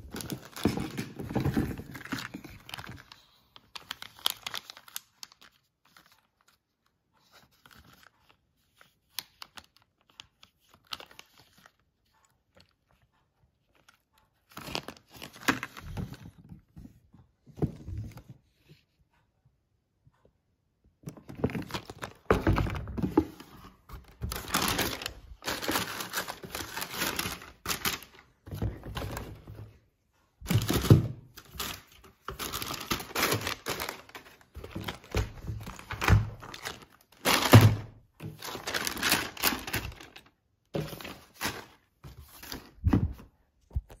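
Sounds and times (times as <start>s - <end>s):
tissue paper rustling: 21.5s - 29.4s, 30.5s - 43.2s.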